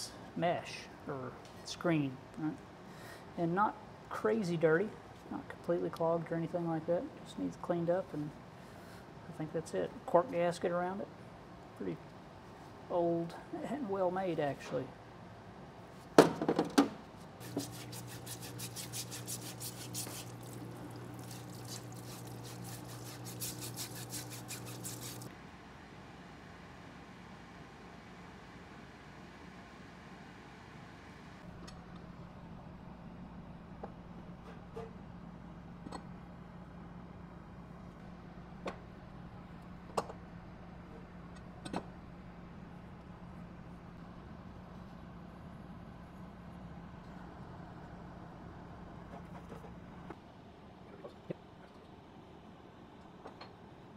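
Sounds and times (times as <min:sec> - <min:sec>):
pump electric hum: 0:16.2 - 0:50.2
brush scrubbing metal: 0:17.4 - 0:25.3
solvent splashing: 0:17.4 - 0:25.3.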